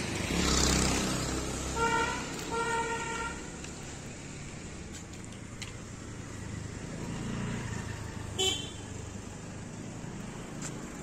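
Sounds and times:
road traffic: 0.0 - 11.0
vehicle horn toot: 1.8 - 3.5, 8.4 - 8.8.

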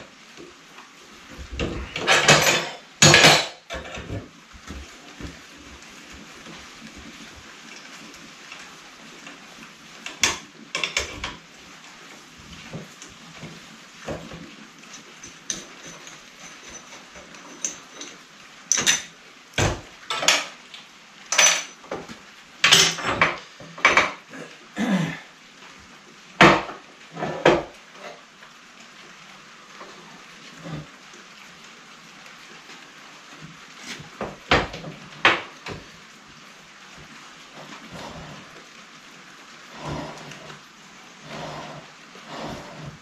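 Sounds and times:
metal tools clanking on workbench: 1.9 - 4.2, 14.9 - 19.1, 21.3 - 21.8.

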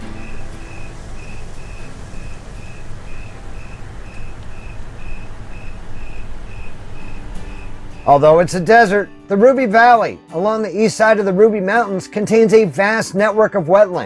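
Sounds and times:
cricket chirping: 0.0 - 9.3
low outdoor rumble: 0.0 - 9.3.

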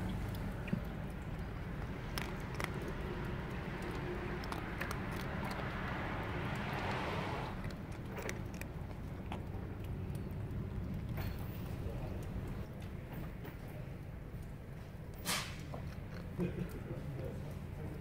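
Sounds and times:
steady low rumble: 0.0 - 12.7
cat crunching dry kibble: 0.1 - 12.8, 14.3 - 18.0.

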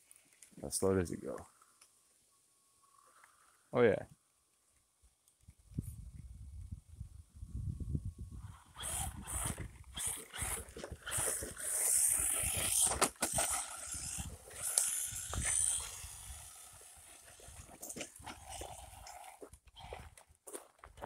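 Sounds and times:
toy car electric motor whining: 8.4 - 20.2.

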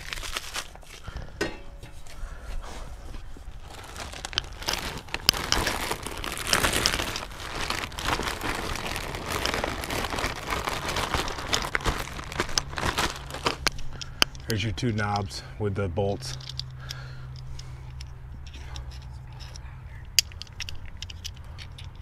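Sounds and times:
plastic bag crinkling: 0.0 - 1.3, 3.5 - 14.3.

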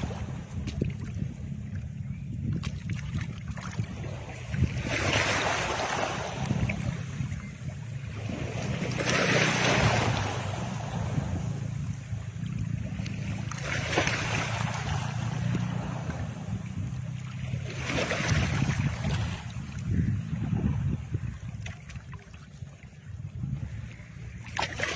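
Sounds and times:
steady low drone: 9.6 - 17.7.

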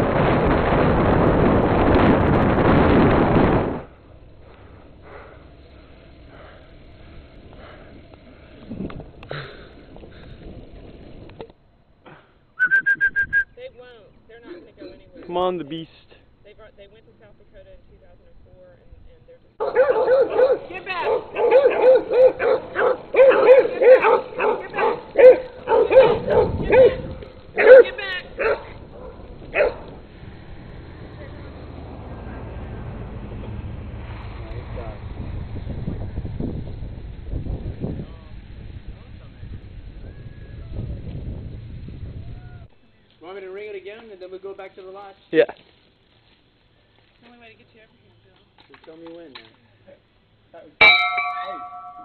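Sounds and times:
sniffing breaths: 4.4 - 10.5
dog barking: 19.6 - 27.0, 27.6 - 29.9.

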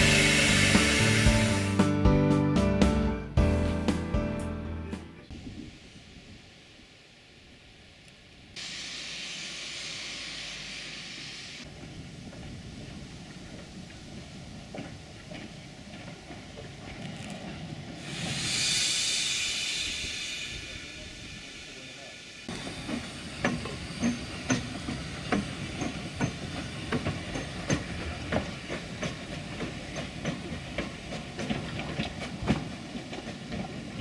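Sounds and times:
steam locomotive hissing steam: 0.0 - 1.9, 5.3 - 7.2, 8.6 - 11.7, 17.9 - 34.0
locomotive wheels clanking: 11.8 - 18.4, 22.5 - 34.0.

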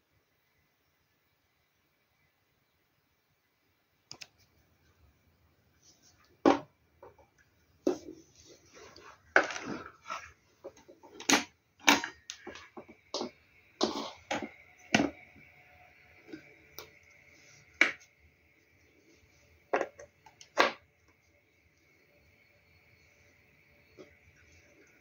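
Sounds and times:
faint high-pitched whine: 0.0 - 25.0.

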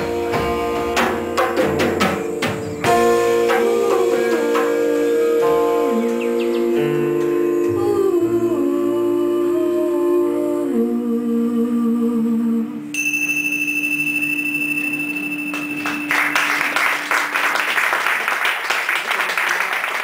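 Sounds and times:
live music: 0.0 - 10.4, 13.9 - 19.0
high steady tone: 12.9 - 16.8
audience applause: 15.5 - 20.0.

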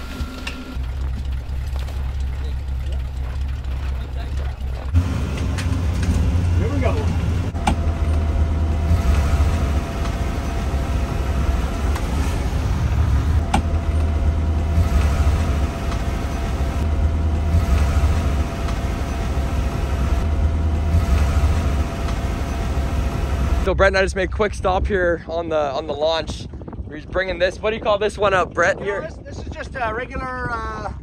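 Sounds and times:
snowcat engine and tracks rumbling: 0.0 - 30.2.

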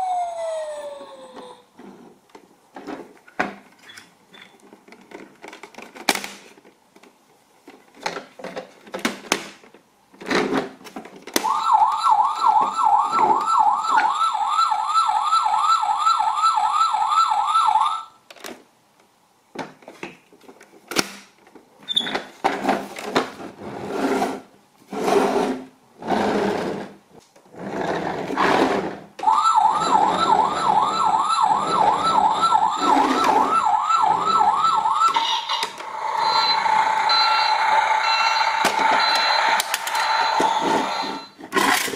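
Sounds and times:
toy electronic siren warbling: 0.0 - 1.7, 11.4 - 18.1, 29.2 - 41.4.

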